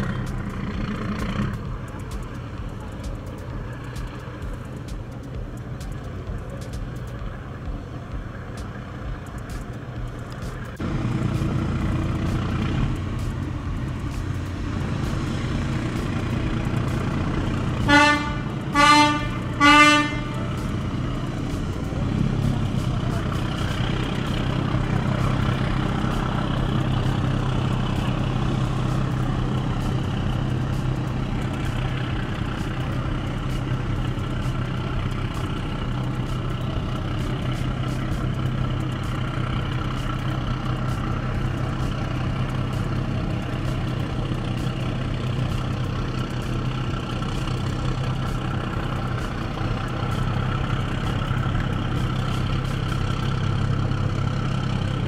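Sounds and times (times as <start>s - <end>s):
ship engines humming: 0.0s - 55.0s
ferry horn short blasts: 17.8s - 20.8s.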